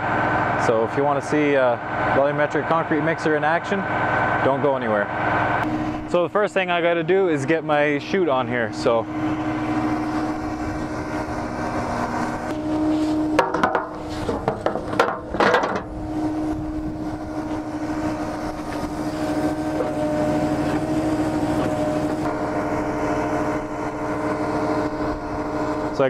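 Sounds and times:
truck engine idling: 0.0s - 26.0s
metal clanks and knocks: 13.2s - 16.0s.

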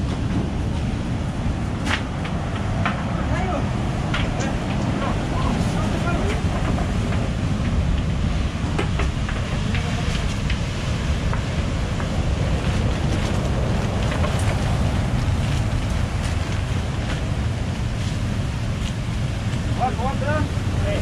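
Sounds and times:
surf breaking on shore: 0.0s - 21.0s
wind buffeting microphone: 0.0s - 21.0s.

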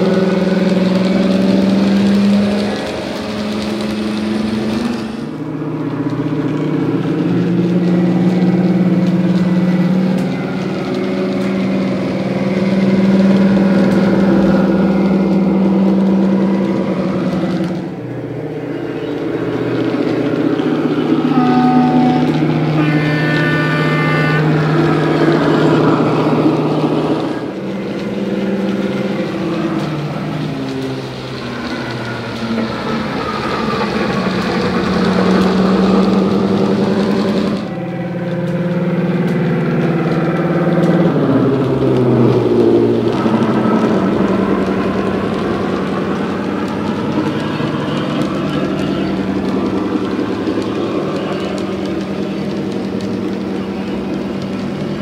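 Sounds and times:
diesel engine drone from small speaker: 0.0s - 55.0s
short high-pitched tone: 21.3s - 24.6s.

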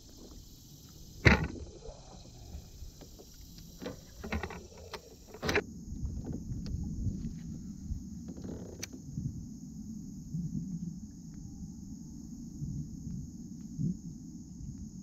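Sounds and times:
wind: 0.0s - 15.0s
knocks on a kayak: 1.2s - 1.6s.

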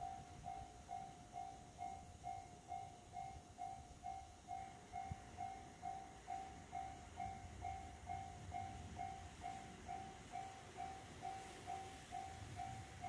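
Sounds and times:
railroad crossing bell ringing: 0.0s - 13.0s.

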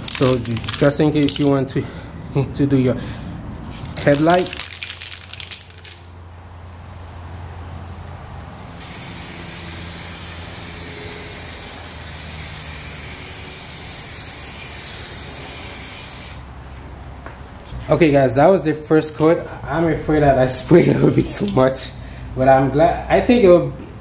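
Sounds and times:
aerosol can spraying: 8.7s - 16.5s.

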